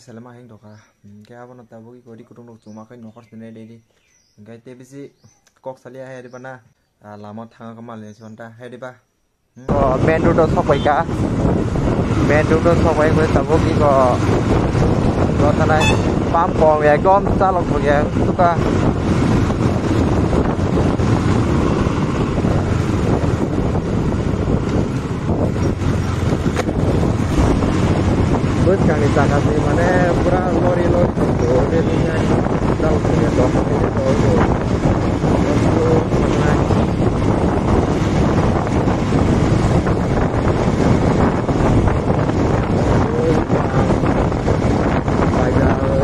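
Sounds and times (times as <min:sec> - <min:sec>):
wind rushing over microphone: 0:09.7 - 0:46.0
motorcycle engine: 0:09.8 - 0:46.0
tyres on road: 0:10.0 - 0:46.0.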